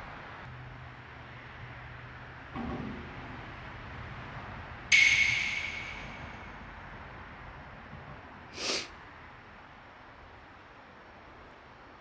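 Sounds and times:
bell-like ding: 4.9s - 6.6s
background hiss: 8.6s - 8.9s.

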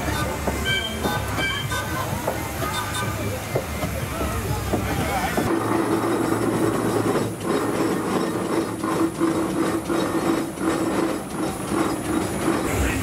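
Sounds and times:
machinery rhythmic clatter: 0.0s - 13.0s
steady machine hum: 5.5s - 13.0s.

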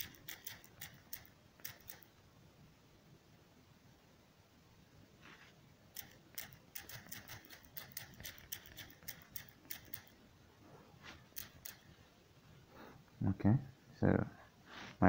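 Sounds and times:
touchscreen keyboard typing clicks: 0.0s - 2.1s, 6.0s - 10.2s, 11.3s - 11.9s.

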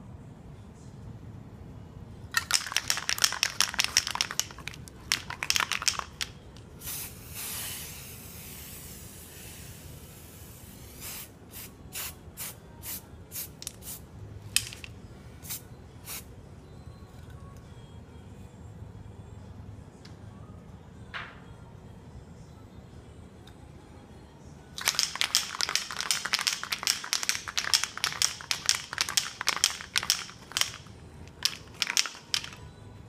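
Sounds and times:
aerosol can rattling: 2.4s - 6.3s, 24.8s - 32.6s
aerosol spray hissing: 6.8s - 14.0s.

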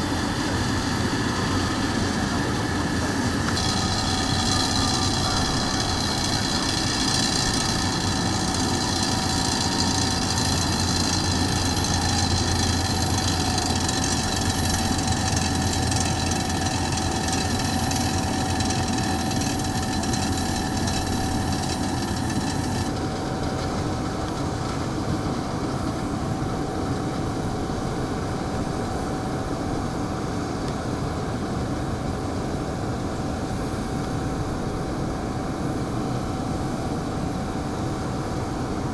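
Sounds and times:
low hum: 0.0s - 26.6s
jet engine whine: 0.0s - 38.9s.

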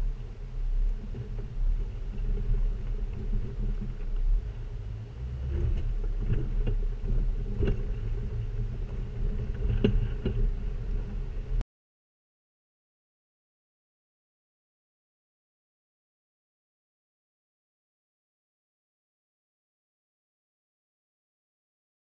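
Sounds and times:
vehicle rumbling over dried mud: 0.0s - 11.6s.

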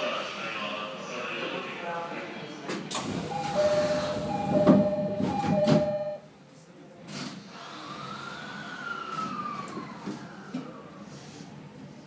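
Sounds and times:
train doors shutting: 2.7s - 6.2s
train motor whine: 3.1s - 6.0s
platform din: 3.3s - 6.2s
two-tone door chime: 3.3s - 6.2s.

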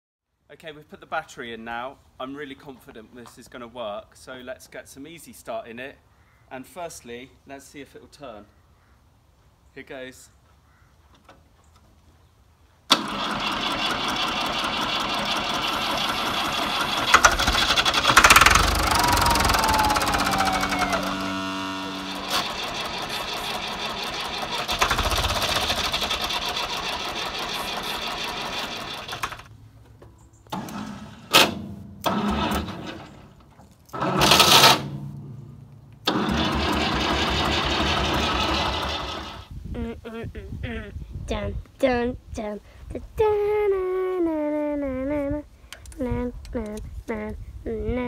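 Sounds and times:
tractor engine cranking on starter: 12.9s - 29.5s, 30.5s - 35.4s, 36.0s - 39.5s.

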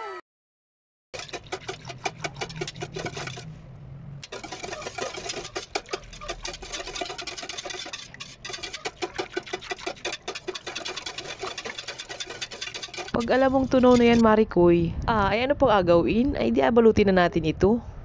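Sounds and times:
whisk clicking against steel bowl: 1.2s - 3.5s, 4.2s - 14.2s.

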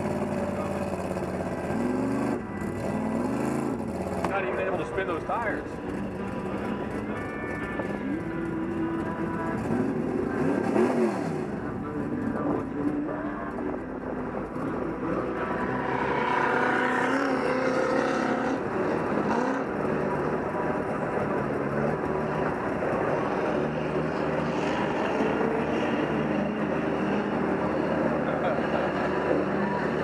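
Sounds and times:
vehicle driving through mud: 0.0s - 5.3s, 14.6s - 30.0s
diesel engine running: 0.0s - 30.0s.

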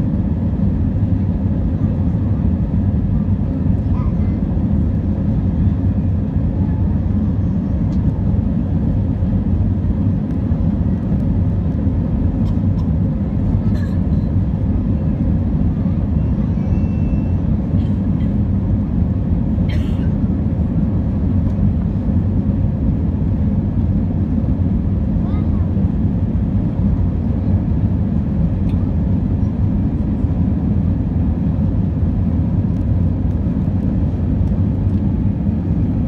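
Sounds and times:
airliner cabin roar: 0.0s - 36.0s.

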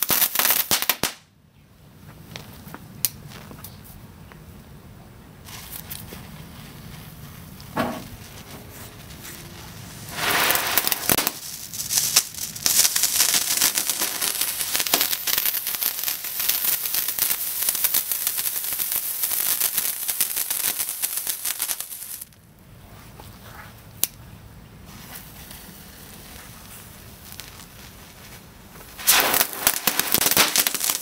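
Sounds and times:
firework fountain hissing and crackling: 0.0s - 1.2s, 5.4s - 22.4s, 24.8s - 31.0s.

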